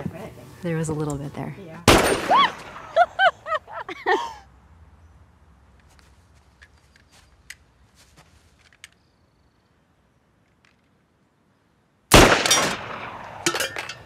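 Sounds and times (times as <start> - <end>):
pistol shot: 1.9 - 2.8, 12.1 - 13.5.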